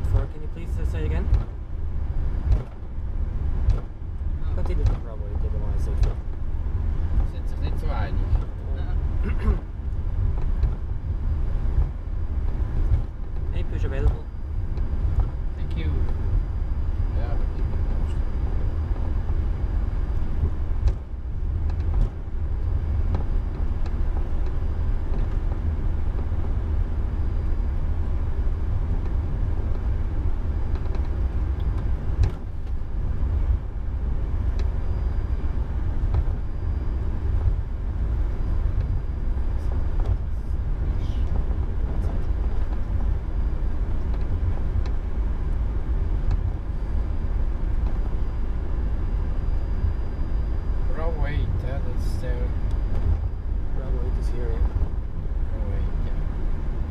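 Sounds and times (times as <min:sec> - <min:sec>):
aircraft cockpit rumble: 0:00.0 - 0:56.9
short knocks and clicks: 0:02.4 - 0:02.8.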